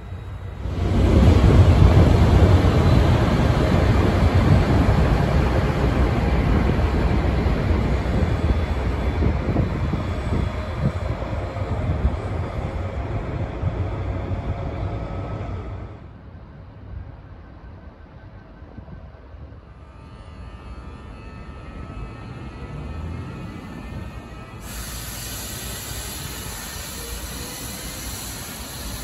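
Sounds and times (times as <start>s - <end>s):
diesel locomotives running: 17.6s - 29.0s.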